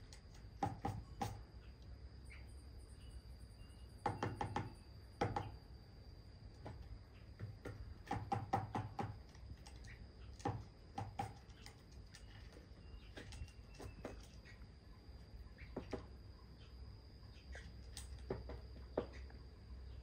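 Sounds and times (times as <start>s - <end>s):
bird pecking on hard objects: 0.0s - 1.4s, 6.6s - 14.5s, 17.8s - 19.3s
faint high whine: 0.0s - 7.6s, 11.5s - 20.0s.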